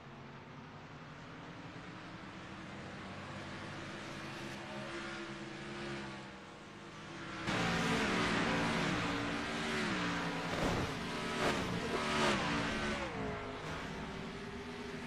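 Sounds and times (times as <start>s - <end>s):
race car engine revs falling: 10.2s - 14.5s.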